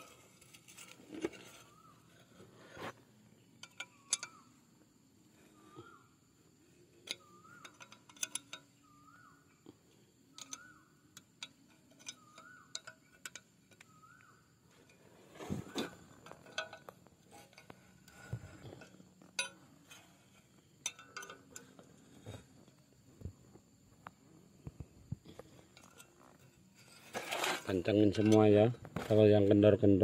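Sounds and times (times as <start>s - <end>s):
wrench clicking on bolts: 3.6s - 4.4s, 7.0s - 8.7s, 10.4s - 13.9s, 20.8s - 21.9s
metal clanks: 3.6s - 4.6s, 6.9s - 8.8s, 10.4s - 22.8s, 25.3s - 29.1s.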